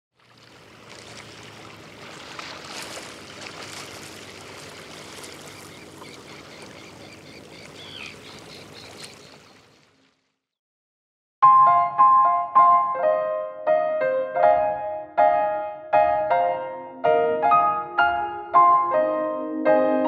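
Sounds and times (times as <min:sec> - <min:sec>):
outdoor ambient noise: 0:00.2 - 0:10.2
bird chirping: 0:05.4 - 0:09.6.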